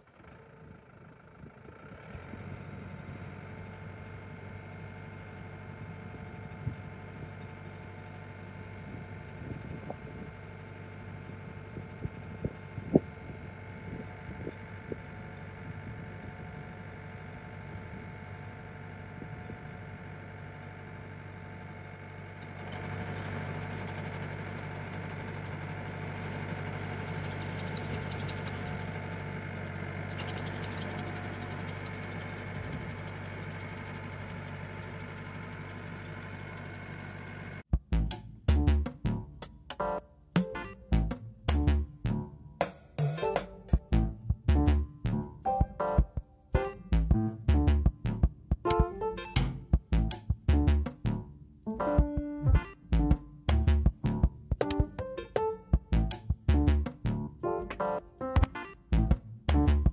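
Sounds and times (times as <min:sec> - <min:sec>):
tractor engine idling: 0:00.0 - 0:09.5, 0:13.4 - 0:37.7
fertiliser spreader rattling buzz: 0:00.0 - 0:37.6
sharp clicks: 0:26.2 - 0:37.6.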